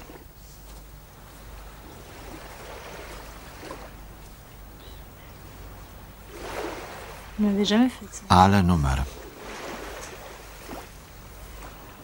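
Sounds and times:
waves washing in: 0:00.0 - 0:12.0.

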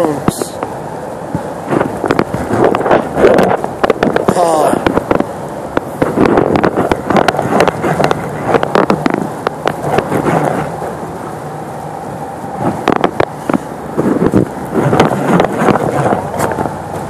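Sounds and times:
river water rushing: 0:00.0 - 0:17.0
wind on microphone: 0:00.0 - 0:17.0
phone handling crackles and knocks: 0:01.7 - 0:10.4.

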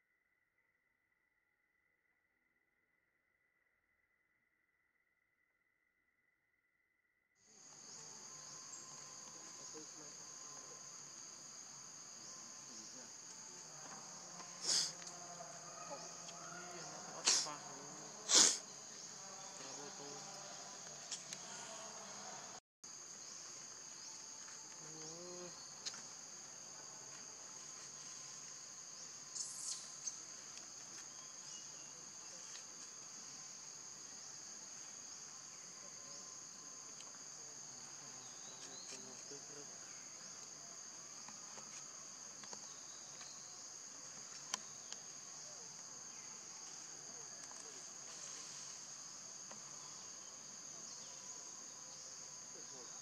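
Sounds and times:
insect chorus buzzing: 0:07.5 - 0:53.0
rustles: 0:46.7 - 0:49.8.

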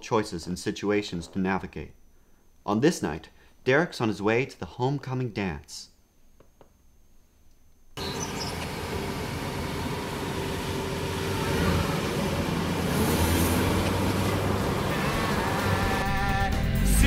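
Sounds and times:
car engine and tyre noise: 0:08.0 - 0:16.2.

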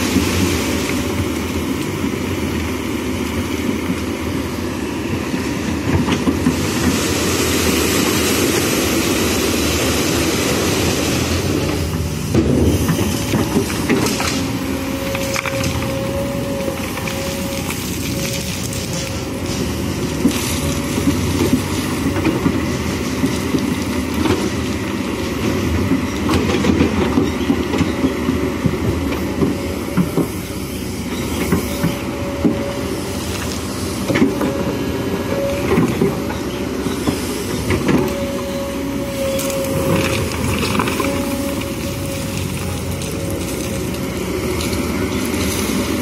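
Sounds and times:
diesel engine running: 0:00.0 - 0:46.0
stones and gravel clattering: 0:39.4 - 0:46.0.

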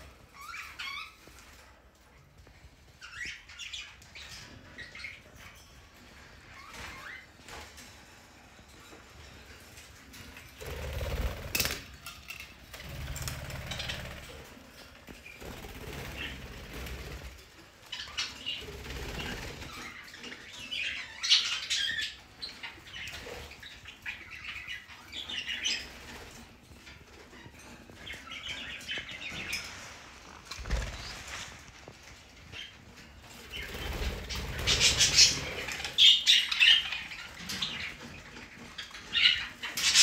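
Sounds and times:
budgerigars chirping and chattering: 0:17.9 - 0:30.0, 0:32.5 - 0:40.0.

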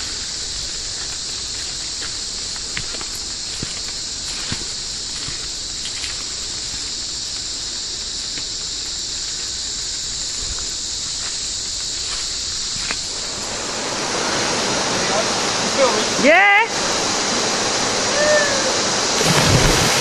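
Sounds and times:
light footsteps on trail: 0:00.0 - 0:13.4
insect chorus hiss: 0:00.0 - 0:20.0.

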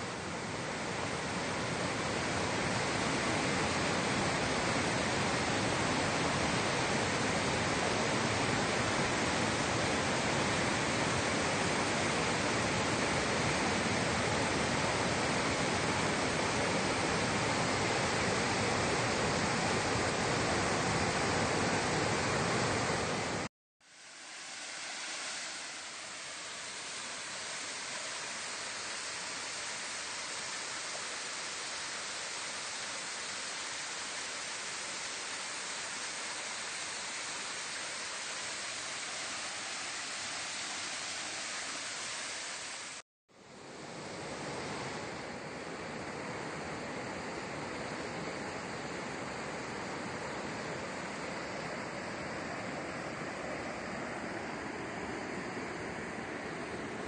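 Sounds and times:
rushing stream water: 0:00.0 - 0:57.0.

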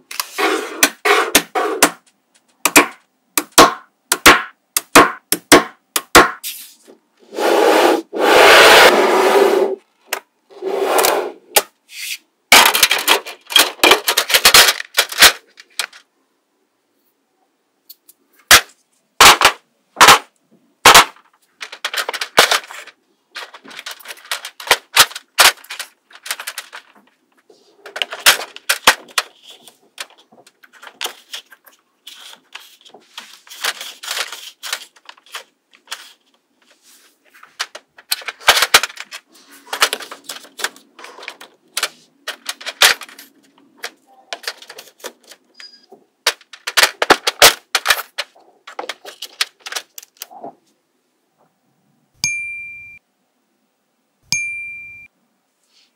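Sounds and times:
wooden game pieces clicking: 0:21.6 - 0:27.1, 0:37.4 - 0:45.4.

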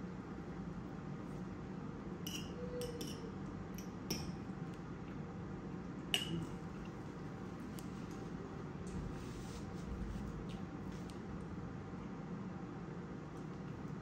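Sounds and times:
low room hum: 0:00.0 - 0:14.0
metal fork clinking on bowl: 0:02.2 - 0:04.5, 0:06.1 - 0:06.5.

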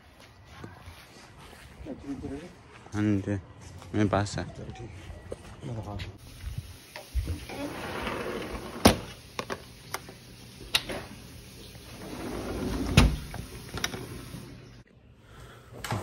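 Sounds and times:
sliding door rumbling on track: 0:07.4 - 0:09.1, 0:11.8 - 0:14.4.

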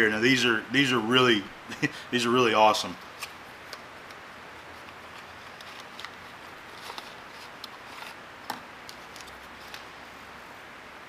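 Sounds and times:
faint room hiss: 0:00.0 - 0:11.0
paper unwrapping: 0:04.8 - 0:08.2, 0:08.9 - 0:09.9.

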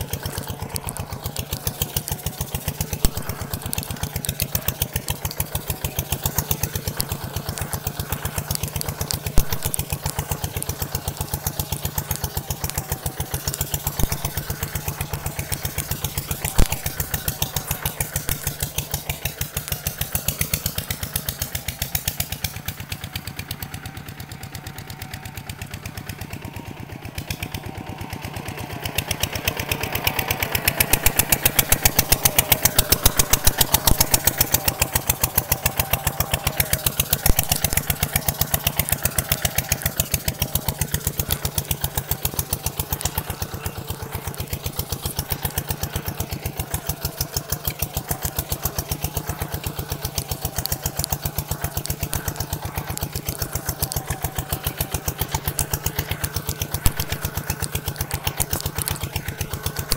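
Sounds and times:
tractor engine running: 0:00.0 - 0:59.9.

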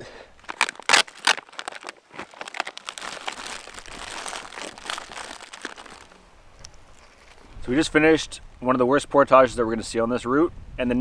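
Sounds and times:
plastic packaging crinkling: 0:00.4 - 0:07.4.

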